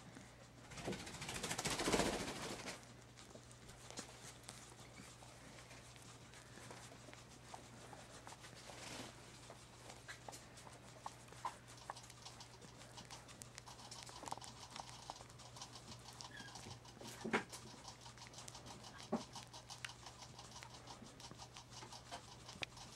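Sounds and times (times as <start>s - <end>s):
small rustles: 0.1s - 22.9s.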